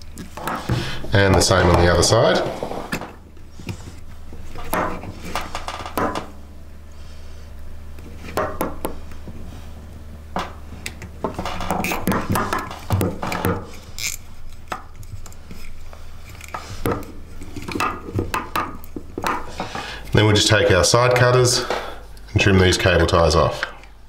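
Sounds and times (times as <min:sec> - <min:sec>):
cable ties pulled tight: 0:13.7 - 0:16.6.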